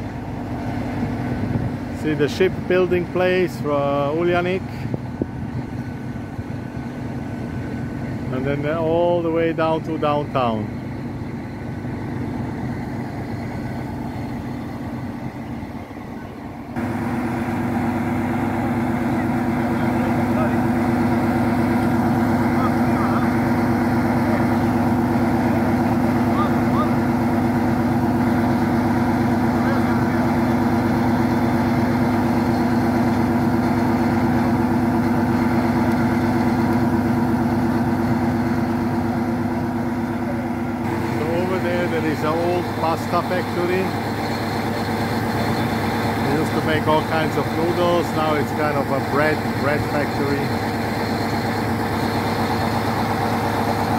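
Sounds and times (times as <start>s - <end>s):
diesel train engine idling: 0.0s - 53.9s
steady low hum: 0.0s - 53.9s.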